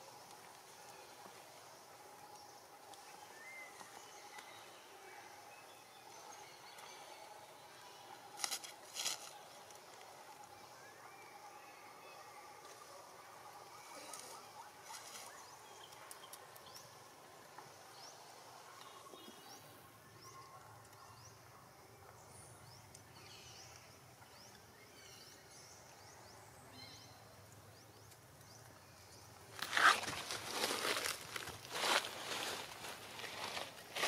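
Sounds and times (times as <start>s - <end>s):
faint forest ambience: 0.0s - 34.0s.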